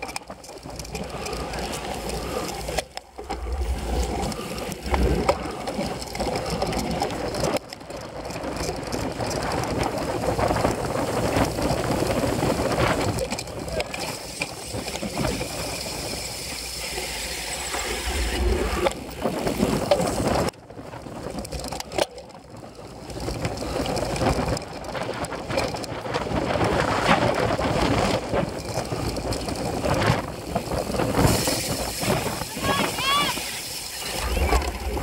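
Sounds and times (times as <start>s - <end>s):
bike rattling over bumps: 0.0s - 35.0s
bike tyres rolling over ground: 0.0s - 35.0s
wind on microphone: 8.4s - 21.5s, 22.5s - 35.0s.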